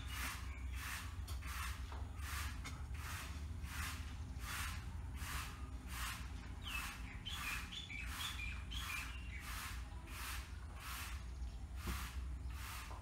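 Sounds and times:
bird chirping: 0.0s - 1.4s, 5.6s - 9.8s
broom sweeping concrete floor: 0.0s - 13.0s.

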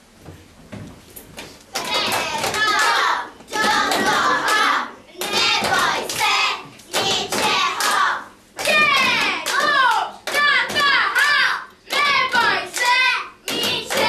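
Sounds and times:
hand clapping: 1.4s - 14.0s
children shouting and cheering: 7.2s - 14.0s.

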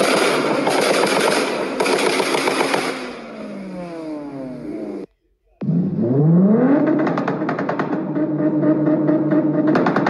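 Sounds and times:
engine revs falling: 0.0s - 10.0s
car exhaust crackling and popping: 6.7s - 10.0s.

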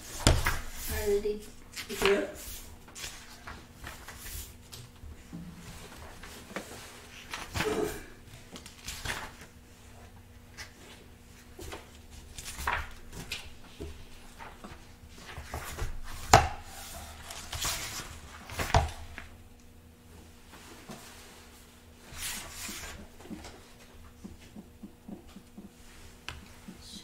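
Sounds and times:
book pages turning: 5.7s - 7.7s, 8.3s - 9.6s, 10.5s - 19.3s, 22.1s - 23.9s.

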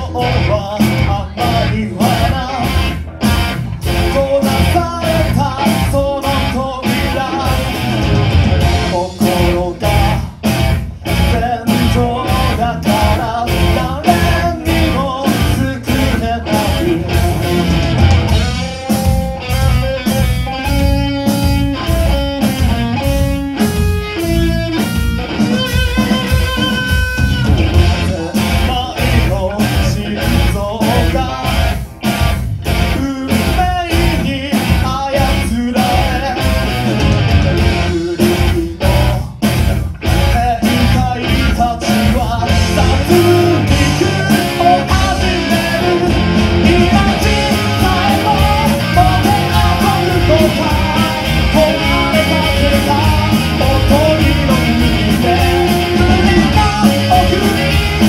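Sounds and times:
person singing: 0.0s - 17.7s, 24.8s - 31.9s, 32.6s - 58.0s
live rock band playing: 0.0s - 58.0s
picked electric guitar melody: 0.0s - 58.0s.

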